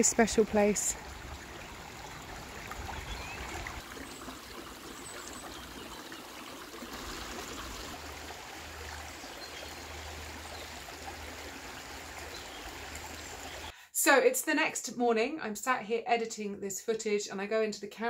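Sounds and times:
stream trickling over stones: 0.0s - 13.7s.

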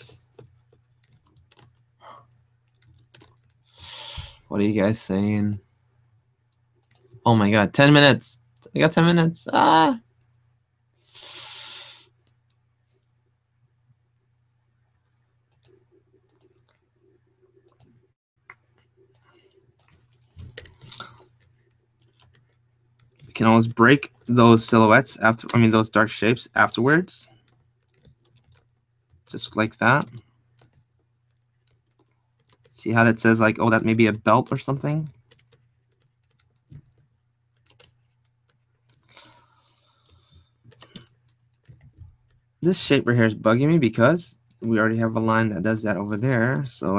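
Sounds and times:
computer keyboard clicks: 0.4s - 1.9s, 2.6s - 3.6s, 19.2s - 23.2s, 27.4s - 29.3s, 35.0s - 39.3s, 40.0s - 42.0s
low steady hum: 12.2s - 46.9s.

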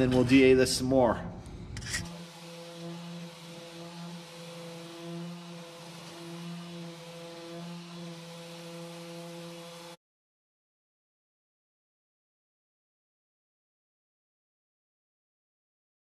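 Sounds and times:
orbital sander motor hum: 1.7s - 10.0s
sandpaper hissing: 1.8s - 10.0s.

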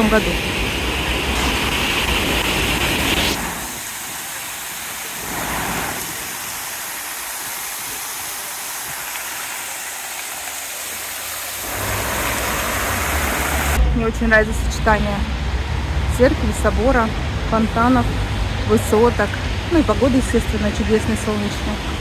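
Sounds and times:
fountain water splashing into pool: 0.0s - 13.8s.

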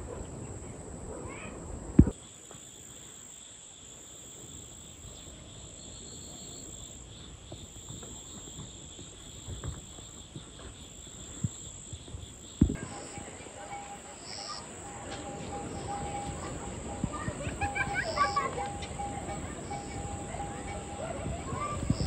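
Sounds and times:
insects chirping shrilly: 9.2s - 22.0s.

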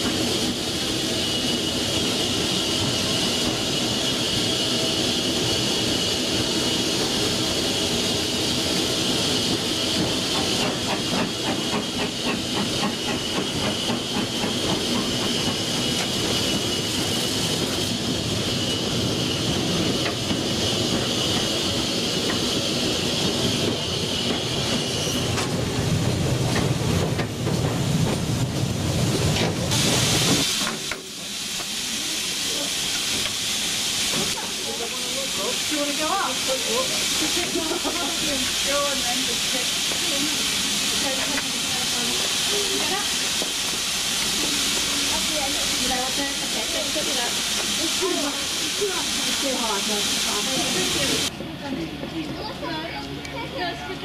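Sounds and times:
steam locomotive running clatter: 0.0s - 54.0s
water spray hissing: 29.6s - 51.3s.

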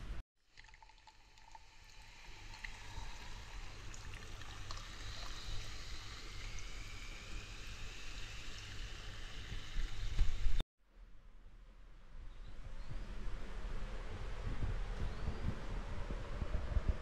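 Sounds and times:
mixer pouring into glass over ice: 0.5s - 9.0s.

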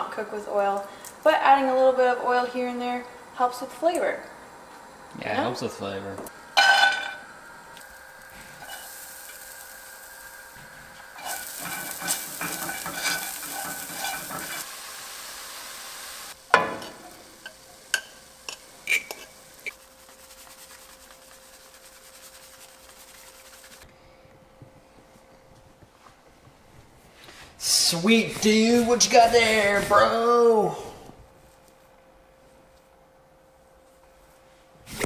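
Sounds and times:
nuts sizzling in a frying pan: 6.3s - 22.5s
spatula scraping a pan: 8.5s - 9.0s, 11.1s - 14.7s, 16.8s - 23.8s.

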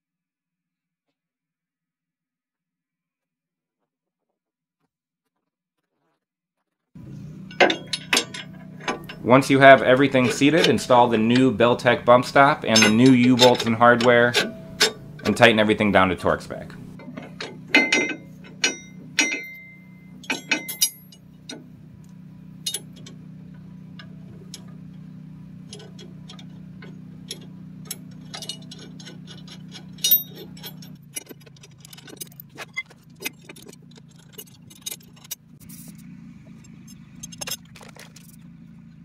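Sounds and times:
metallic clinks: 7.0s - 15.8s, 16.5s - 21.6s, 22.6s - 25.1s, 25.7s - 38.6s
low hum: 7.0s - 39.0s
hand ratchet clicking: 7.4s - 15.8s, 25.6s - 35.9s.

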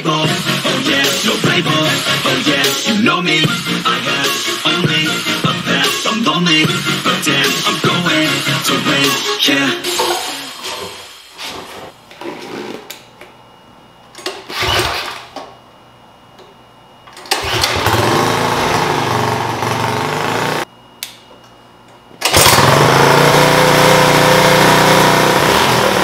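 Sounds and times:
small single-cylinder engine running: 17.3s - 20.6s, 22.2s - 26.0s.

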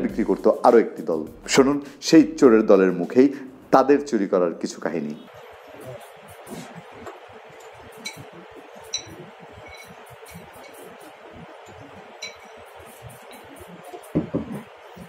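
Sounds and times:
knocks: 14.1s - 14.6s.

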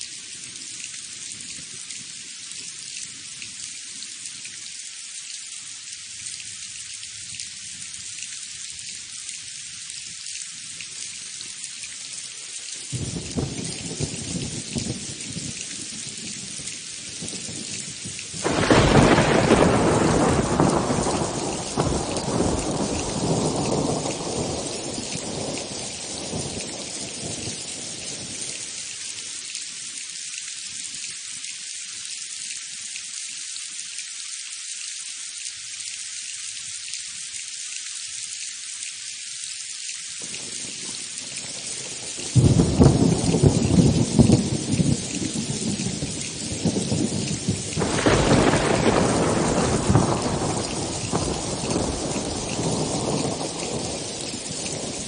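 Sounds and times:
steady rain: 0.0s - 55.0s
thunder rumbling: 17.3s - 27.6s, 42.1s - 55.0s
loud thunderclap: 18.4s - 26.3s, 42.4s - 55.0s.

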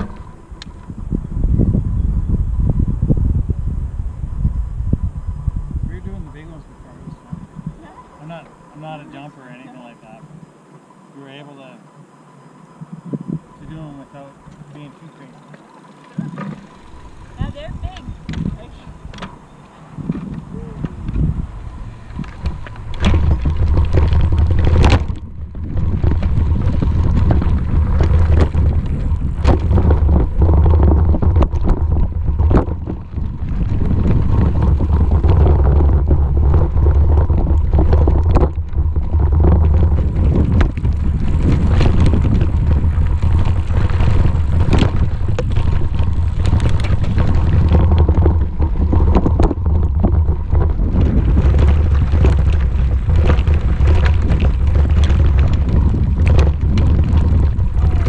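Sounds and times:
bicycle knocks and rattles: 0.0s - 2.0s, 15.5s - 58.0s
wind buffeting microphone: 0.0s - 11.0s, 12.0s - 58.0s
bicycle rumbling on dirt trail: 0.0s - 58.0s.

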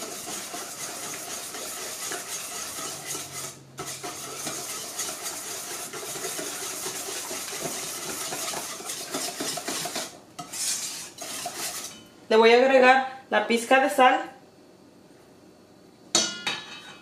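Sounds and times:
whisk rattling in metal bowl: 0.0s - 12.0s.

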